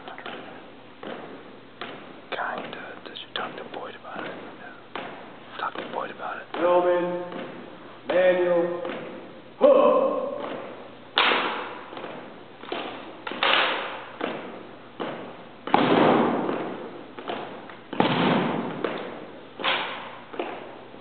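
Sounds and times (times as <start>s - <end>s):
hands smacking rifles with echo: 11.2s - 20.7s.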